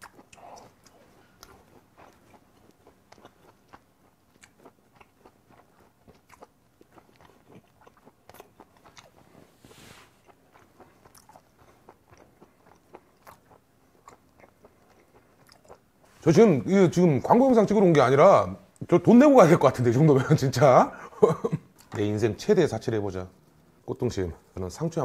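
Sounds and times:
person chewing: 0:00.0 - 0:16.2.

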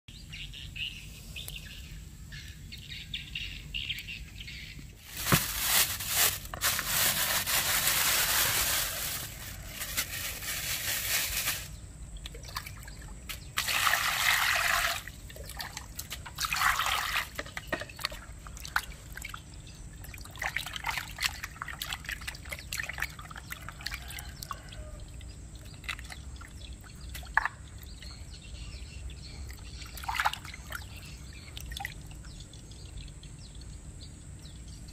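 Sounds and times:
small splashes and drips: 0:12.1 - 0:28.2, 0:29.4 - 0:32.8
water pouring into plastic basin: 0:13.6 - 0:19.3.

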